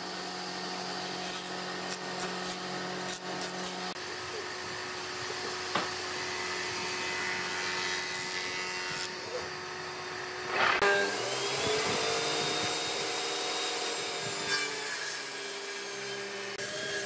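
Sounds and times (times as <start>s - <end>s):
jointer cutting board: 10.4s - 15.7s.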